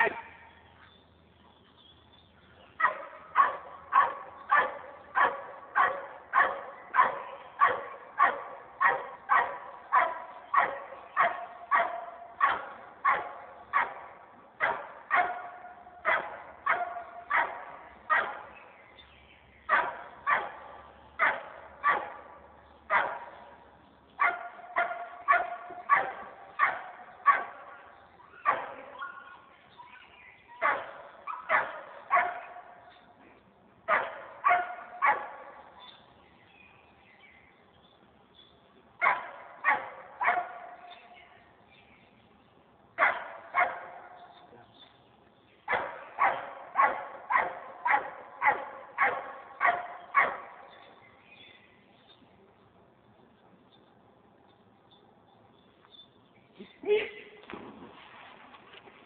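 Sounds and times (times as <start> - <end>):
dog barking: 2.8 - 18.6, 19.7 - 23.5, 24.2 - 29.5, 30.6 - 32.8, 33.9 - 35.6, 39.0 - 41.0, 43.0 - 44.2, 45.7 - 50.8.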